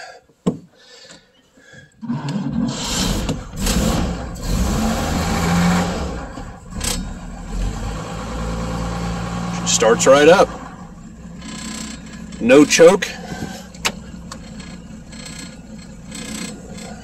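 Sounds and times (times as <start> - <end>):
car engine running unevenly: 3.1 - 17.0
starter cranking: 9.5 - 17.0.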